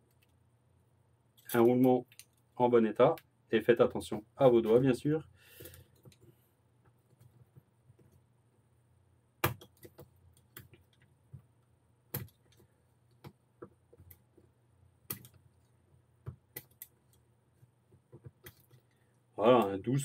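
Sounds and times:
small metallic clicks and taps: 0:01.4 - 0:02.5.

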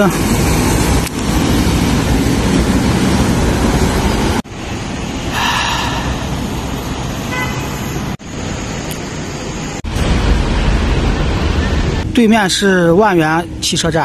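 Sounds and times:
road traffic: 0:00.0 - 0:14.0
car horn toot: 0:07.3 - 0:07.8.

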